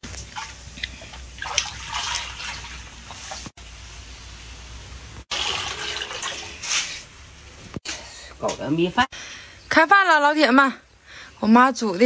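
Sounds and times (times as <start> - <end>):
water sloshing and dripping: 0.0 - 3.6, 5.2 - 7.1.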